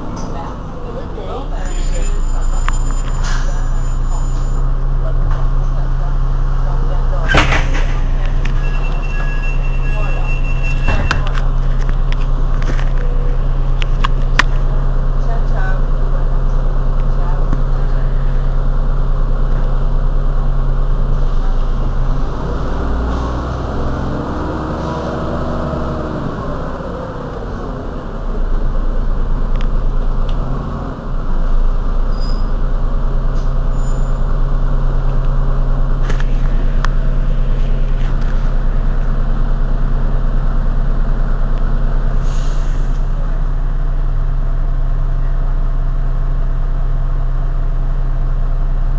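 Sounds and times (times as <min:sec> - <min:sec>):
bus diesel engine idling: 0:00.0 - 0:48.9
pitched whine: 0:06.6 - 0:14.8.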